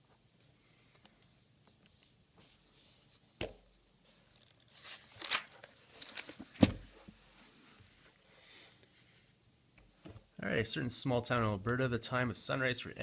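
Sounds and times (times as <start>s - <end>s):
paper sheet rustling: 4.1s - 8.1s.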